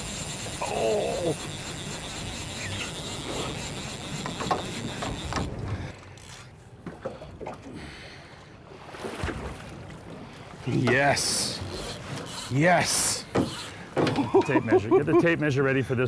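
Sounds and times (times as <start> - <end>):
water noise: 0.0 - 16.0
wind: 0.0 - 16.0.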